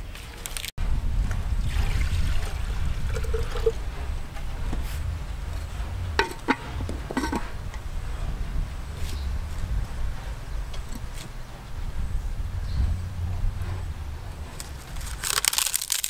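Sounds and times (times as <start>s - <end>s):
steady low rumble: 0.0s - 16.0s
clay lid clinking on pot: 6.2s - 7.5s.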